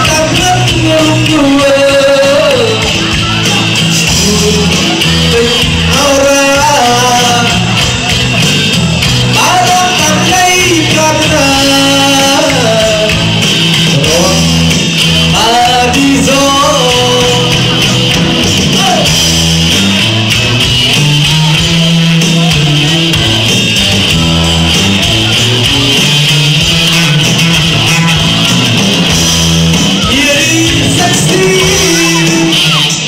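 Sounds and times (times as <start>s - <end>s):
person singing: 0.0s - 19.2s, 26.8s - 33.0s
live band playing dance song: 0.0s - 33.0s
repeating bass line: 0.0s - 33.0s.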